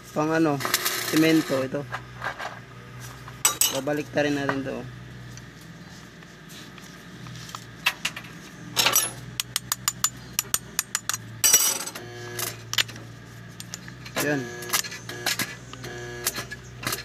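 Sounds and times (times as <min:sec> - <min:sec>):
steady low hum: 0:00.0 - 0:17.0
metal parts clinking: 0:03.4 - 0:03.9, 0:08.8 - 0:13.0, 0:13.6 - 0:15.6.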